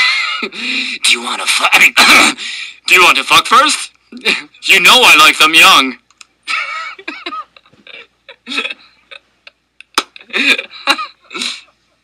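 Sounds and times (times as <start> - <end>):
person laughing: 6.5 - 11.7.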